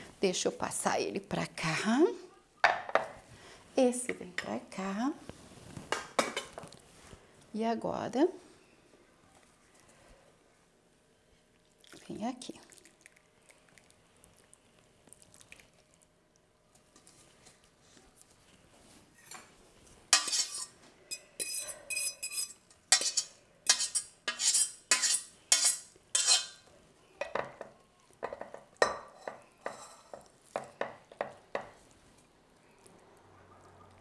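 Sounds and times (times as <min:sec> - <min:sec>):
metal spoon scraping saucepan: 0:20.1 - 0:26.6, 0:28.9 - 0:30.3.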